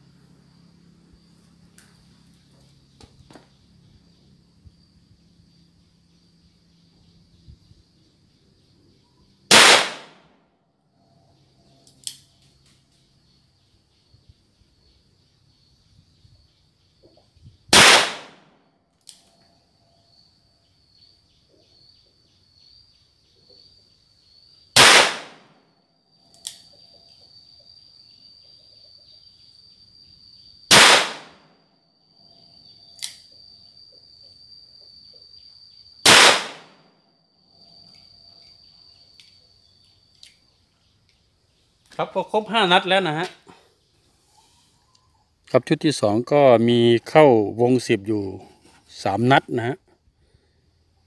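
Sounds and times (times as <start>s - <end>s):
revolver gunshots: 9.5s - 10.3s, 17.7s - 18.5s, 24.8s - 25.6s, 30.7s - 31.5s, 36.0s - 36.8s.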